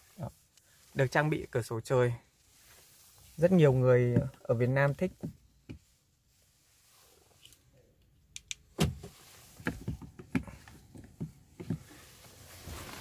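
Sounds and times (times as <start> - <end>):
knocks and clicks in car: 8.8 - 11.9.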